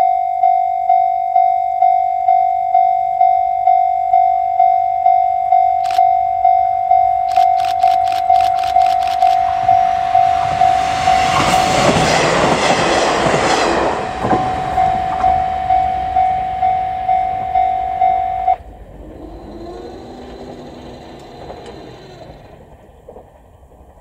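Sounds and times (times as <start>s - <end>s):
level-crossing alarm bell: 0.0s - 12.0s, 14.0s - 18.6s
diesel train passing: 6.4s - 24.0s.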